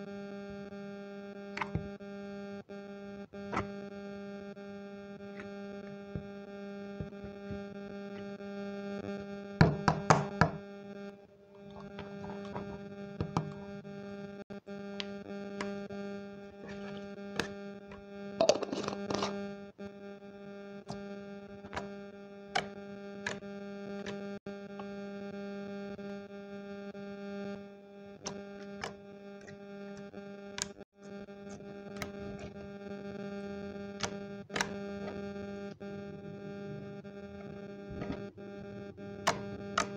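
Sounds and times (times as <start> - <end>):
droning hum of even tones: 0.0 - 39.9
glass jar knocking on wooden table: 9.6 - 10.6.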